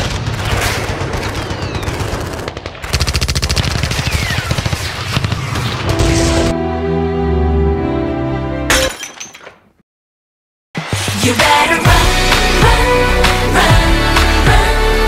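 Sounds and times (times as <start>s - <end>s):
rapid machine-gun fire: 0.0s - 5.9s.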